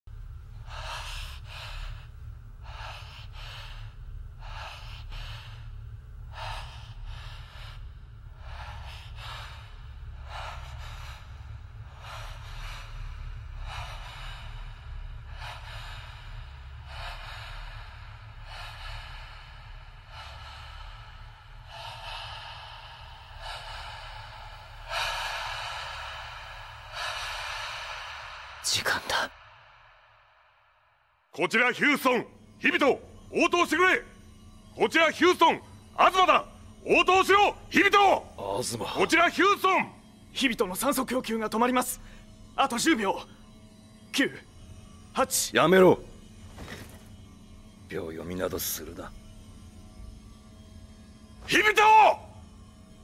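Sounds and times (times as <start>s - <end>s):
steady low hum: 0.0s - 53.0s
man breathing heavily: 0.2s - 30.8s, 42.0s - 42.6s, 46.0s - 47.8s.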